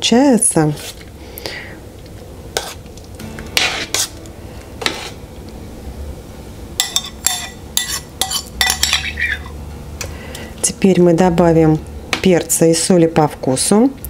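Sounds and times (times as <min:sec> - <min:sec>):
metal spoon clinking in pot: 0:06.8 - 0:09.5.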